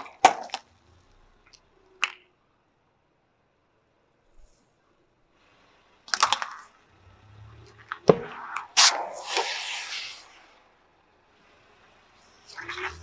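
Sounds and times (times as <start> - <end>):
sharp crack: 0.0 - 0.8, 7.6 - 10.6
can bursting with loud pop: 8.1 - 10.1
foam spraying hiss: 8.8 - 10.5.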